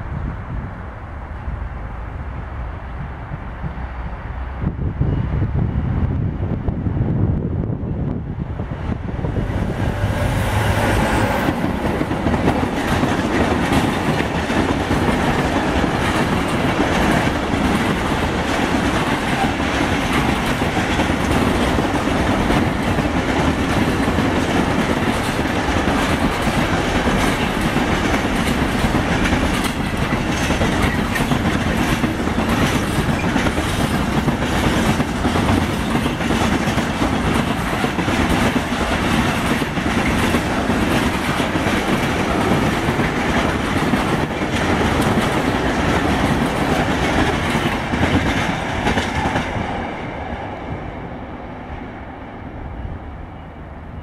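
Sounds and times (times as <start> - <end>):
freight train passing: 0.0 - 54.0
wheels clacking over rail joints: 9.9 - 49.9.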